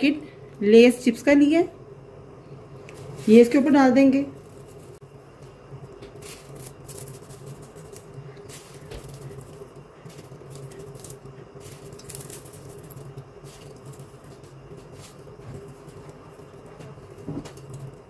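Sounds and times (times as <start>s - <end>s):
faint steady hum: 0.0s - 18.0s
potato chips crackling onto pasta: 6.1s - 18.0s.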